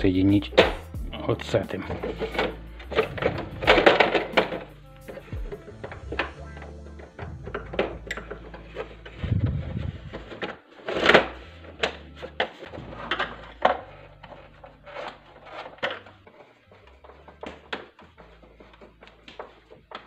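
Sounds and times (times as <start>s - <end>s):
plastic parts clicking and knocking: 0.4s - 20.0s.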